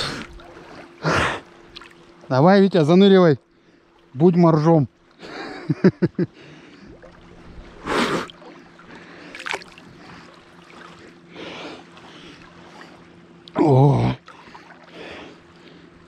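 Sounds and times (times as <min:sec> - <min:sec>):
breathy puffs: 0:00.0 - 0:01.5
small water splashes: 0:00.0 - 0:02.4, 0:06.4 - 0:13.6, 0:14.2 - 0:15.8
water lapping: 0:00.0 - 0:16.0.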